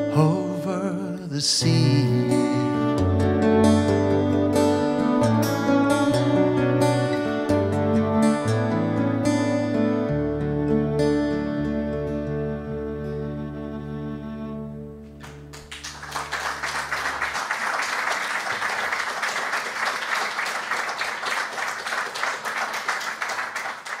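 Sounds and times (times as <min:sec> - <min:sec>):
acoustic guitars and fiddle chord: 0:00.0 - 0:17.4
audience applause: 0:15.2 - 0:24.0.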